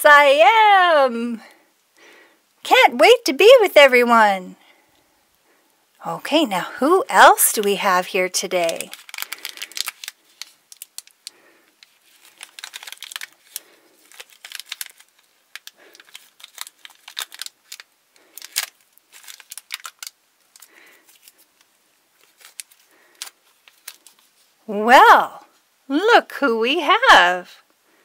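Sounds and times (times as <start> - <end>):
plastic wrapper crinkling and tearing: 7.4 - 24.6.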